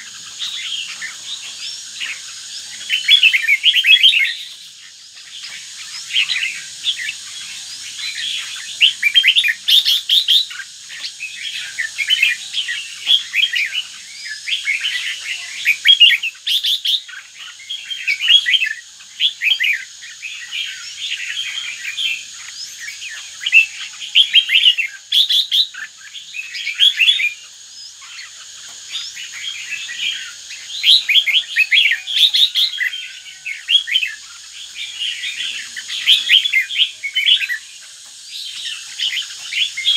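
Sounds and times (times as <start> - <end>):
bird chirping song: 0.0 - 39.9.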